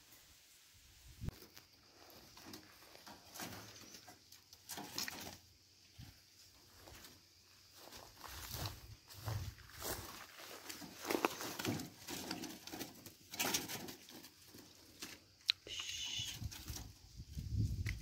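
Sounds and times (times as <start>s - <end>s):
footsteps on dry grass: 6.1s - 12.5s.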